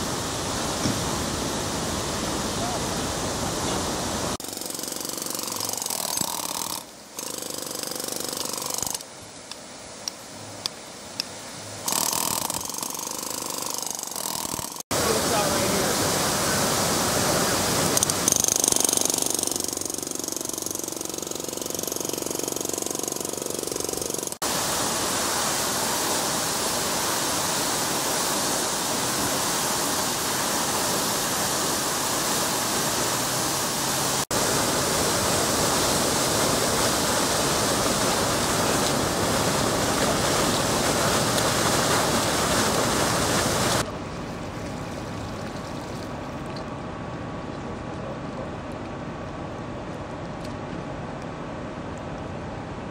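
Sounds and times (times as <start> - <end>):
water gushing from hydrant: 0.0 - 46.3
water running over pavement: 14.8 - 18.3, 24.4 - 46.5.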